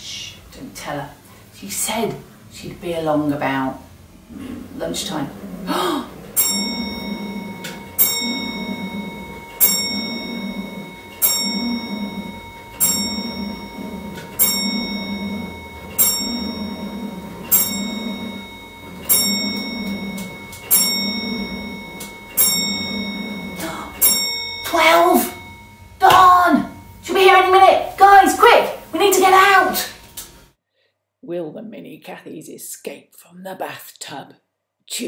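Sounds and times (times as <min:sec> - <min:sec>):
clock bell striking: 0:05.1 - 0:30.5.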